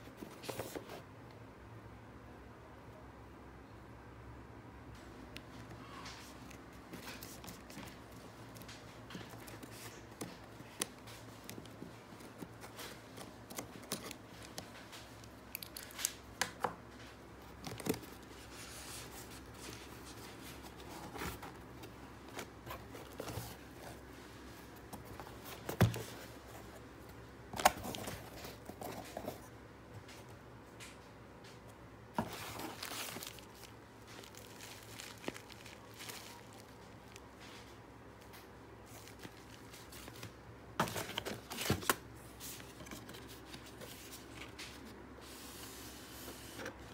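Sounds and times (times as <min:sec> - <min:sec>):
cardboard rustling: 0:00.0 - 0:01.1, 0:06.0 - 0:29.5, 0:32.0 - 0:46.9
bubble wrap rustling: 0:17.0 - 0:26.7, 0:32.2 - 0:46.8.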